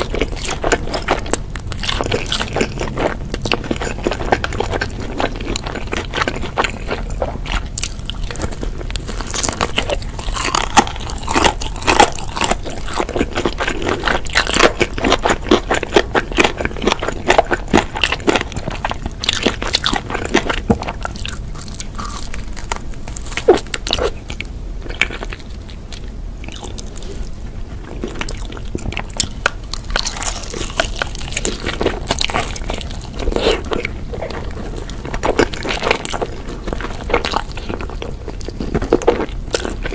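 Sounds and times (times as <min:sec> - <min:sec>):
crunchy chewing of fried chicken: 0:00.0 - 0:39.9.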